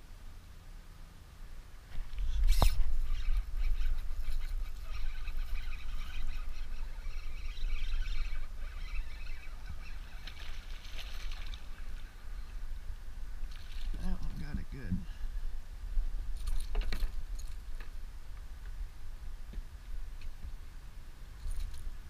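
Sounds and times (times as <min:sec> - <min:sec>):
light water splashing: 0:02.2 - 0:12.2, 0:13.4 - 0:14.4.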